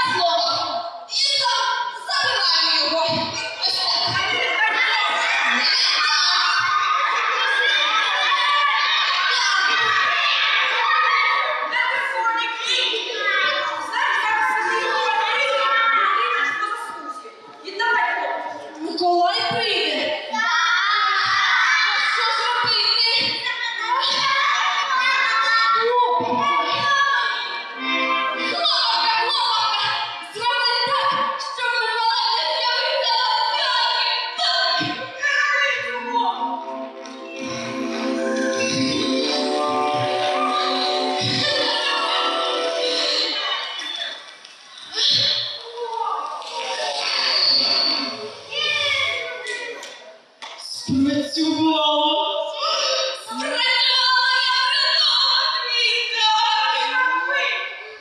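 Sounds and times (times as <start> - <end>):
high voices singing: 21.2 - 31.2, 36.2 - 44.2.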